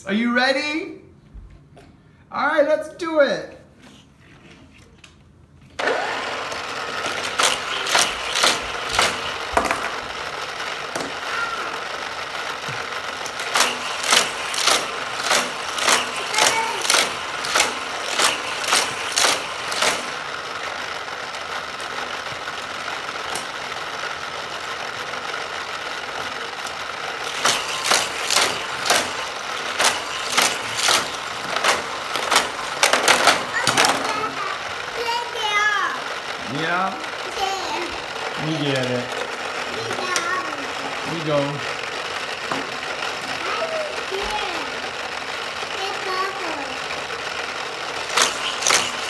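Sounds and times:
toy booster motors whirring: 5.8 - 49.0
plastic clacks of toy cars: 6.9 - 11.8, 12.4 - 20.8, 21.7 - 23.7, 25.0 - 36.3, 37.1 - 49.0.

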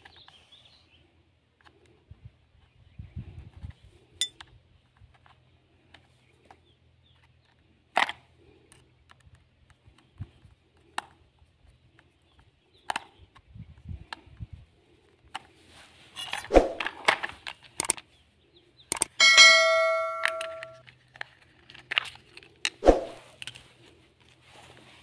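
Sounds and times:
plastic clicks: 16.8 - 18.1, 18.9 - 19.2.

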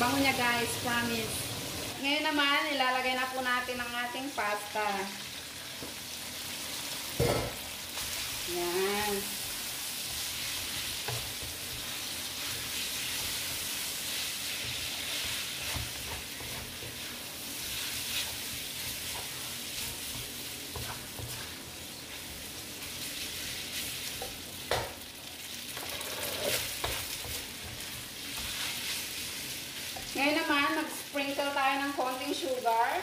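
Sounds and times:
spaghetti sizzling in hot oil: 0.0 - 33.0
spatula scraping a wok: 6.7 - 24.4, 25.8 - 30.2.

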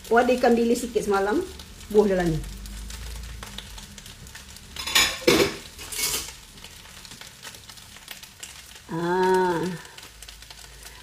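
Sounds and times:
rice sizzling in a pot: 0.0 - 11.0
dishes and metal spoon clattering: 4.8 - 6.3.

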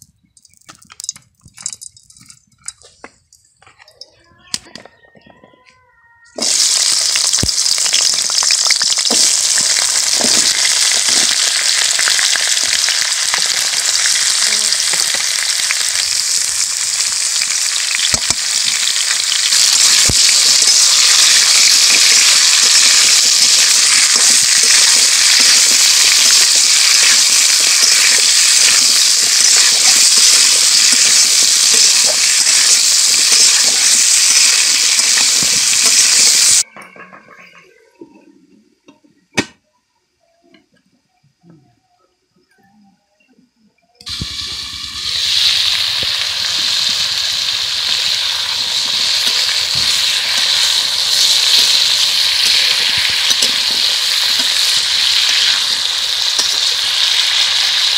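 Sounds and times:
food sizzling in hot oil: 6.4 - 36.7, 44.0 - 57.9.

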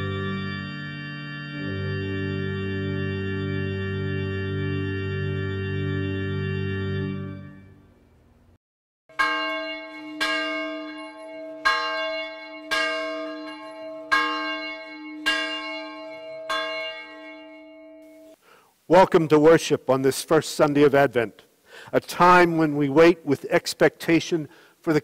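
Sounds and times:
church bell ringing: 0.0 - 6.3, 9.1 - 18.4
organ chord with tremolo: 0.0 - 7.9.

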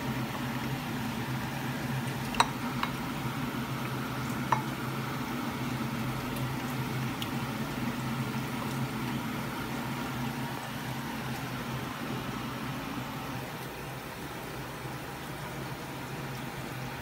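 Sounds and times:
steady low hum: 0.0 - 17.0
spoon clinking ceramic bowl: 2.3 - 3.0.

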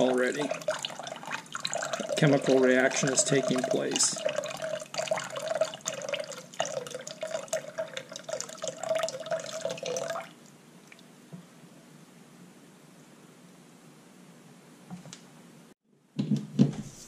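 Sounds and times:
liquid trickling into a pot: 0.0 - 11.1.

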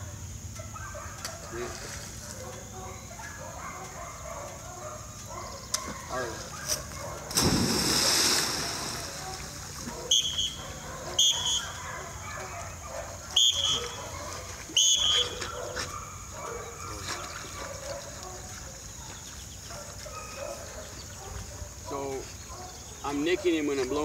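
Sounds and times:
dog splashing into water: 7.2 - 10.1
dog whistle blasts: 10.1 - 10.6, 11.2 - 11.8, 13.4 - 14.0, 14.8 - 15.4.

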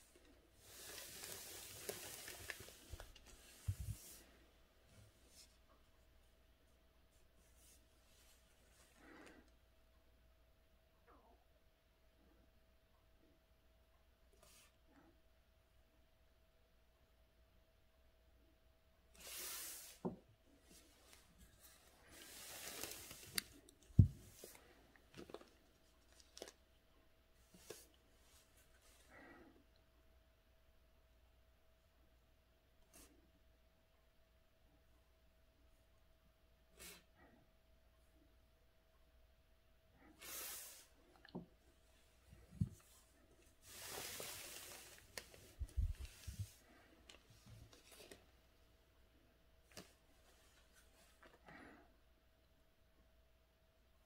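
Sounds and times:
paper rustling and sliding: 0.0 - 4.4, 19.2 - 20.1, 20.7 - 26.6, 42.4 - 48.3
brush swish on paper: 0.6 - 4.4, 19.2 - 20.0, 40.2 - 41.0, 43.6 - 46.8.

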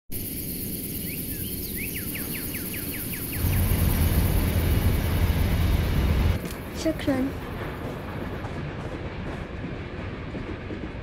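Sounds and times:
train rumbling: 3.0 - 11.0.

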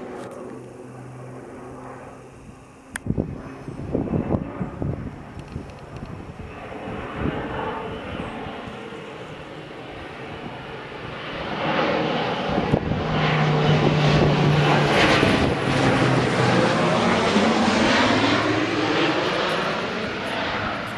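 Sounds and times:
faint high whine: 0.0 - 14.8
propeller plane passing overhead: 0.0 - 20.9.

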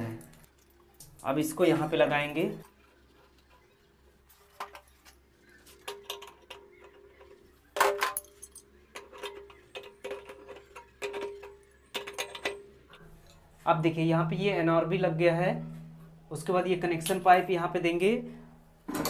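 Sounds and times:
light metallic clicks and clinks: 5.8 - 13.4.

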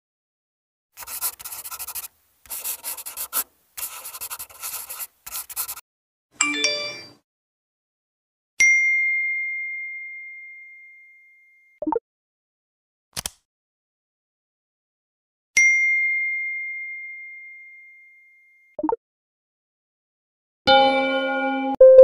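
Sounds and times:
pencil scratching on paper: 1.0 - 5.8
phone notification chime: 6.4 - 7.2, 20.7 - 22.0.

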